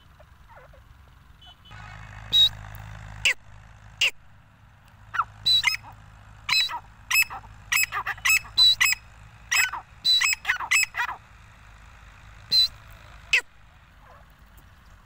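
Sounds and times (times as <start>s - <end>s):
francolin calling: 5.1s - 11.2s, 12.5s - 13.5s.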